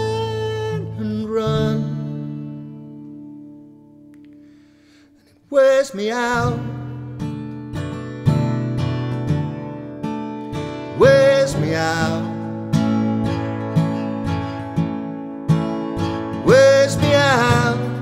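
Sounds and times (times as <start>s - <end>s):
man singing: 0.0s - 2.4s, 5.5s - 7.1s, 10.9s - 12.9s, 16.2s - 18.0s
acoustic guitar strumming: 0.0s - 18.0s.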